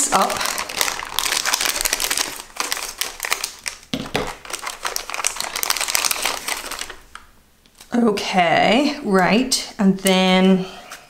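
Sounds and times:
plastic wrapping crinkling: 0.0s - 8.0s.

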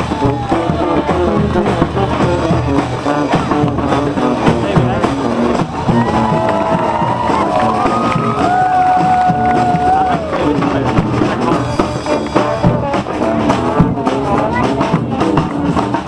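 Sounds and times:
snare drum: 0.0s - 16.0s
trombone: 0.0s - 16.0s
trumpet: 0.0s - 16.0s.

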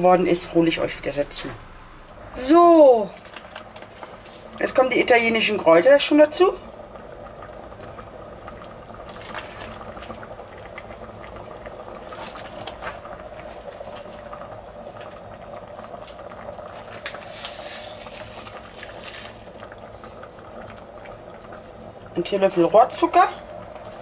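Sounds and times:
faint steady hum: 0.0s - 24.0s
sauce bubbling and popping: 3.1s - 5.5s, 6.3s - 22.2s.

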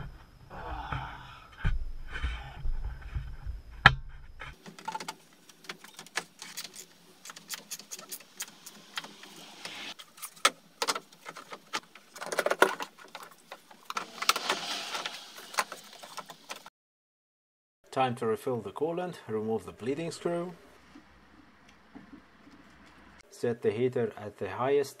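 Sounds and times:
clicks and rattles of parts: 4.5s - 9.3s, 10.0s - 16.7s.

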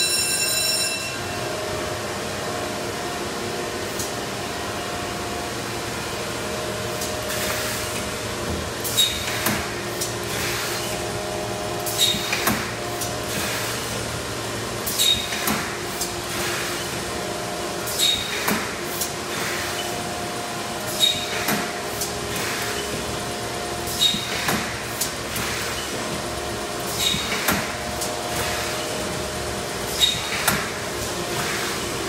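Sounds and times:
machine clank with ring: 0.0s - 1.3s.

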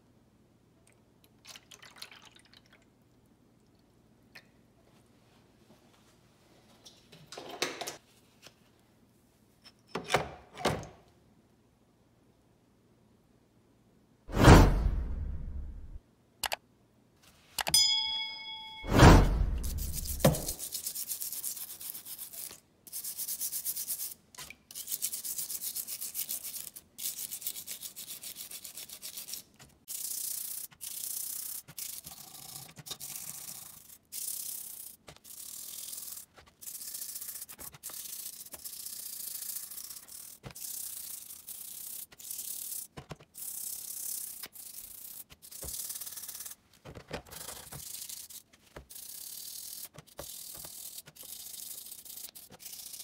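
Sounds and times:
stiff brush scrubbing wet metal: 47.3s - 53.0s.

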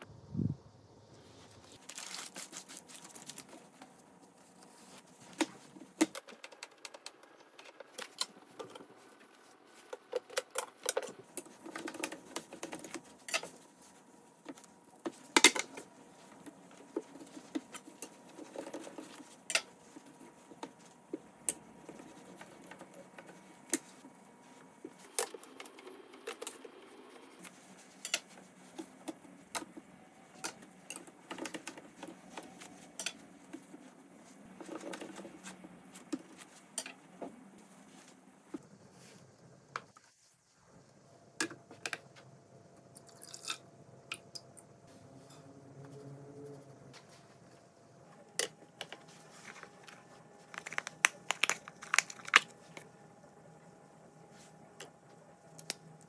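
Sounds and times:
paper liner rustling: 1.6s - 6.0s.

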